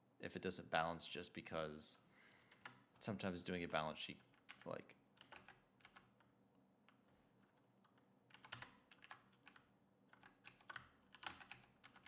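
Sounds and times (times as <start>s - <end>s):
faint keyboard typing: 2.4s - 3.1s, 4.0s - 12.0s.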